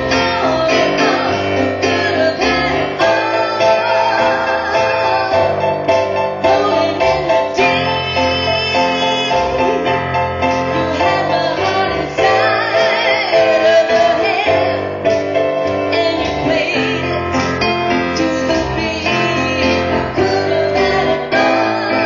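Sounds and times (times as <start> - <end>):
woman singing: 0.0 - 5.7, 6.4 - 15.2, 15.8 - 22.0
piano accompaniment: 0.0 - 22.0.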